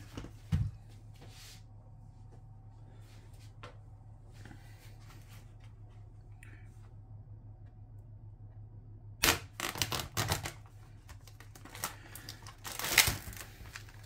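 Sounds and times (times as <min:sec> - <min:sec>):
plastic crackling and crinkling: 0:09.2 - 0:14.0.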